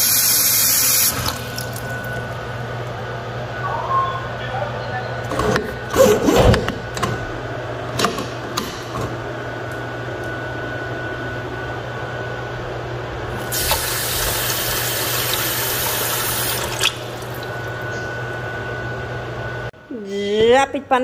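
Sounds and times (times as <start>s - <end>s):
faucet running water into pot: 0.0s - 2.1s, 13.4s - 17.8s.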